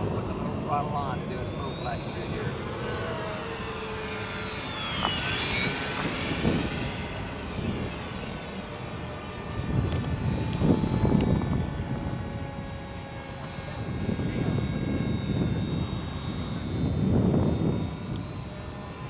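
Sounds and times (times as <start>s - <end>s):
model airplane motor whining: 0.0s - 19.0s.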